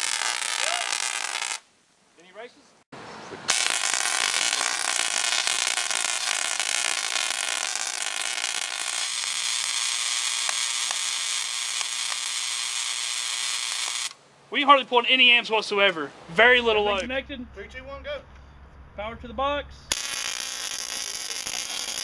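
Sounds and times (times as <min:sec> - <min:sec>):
electric crackles: 0:00.0 - 0:01.6, 0:03.5 - 0:14.2, 0:19.9 - 0:22.0
tesla coil buzzing: 0:03.5 - 0:14.2, 0:19.9 - 0:22.0.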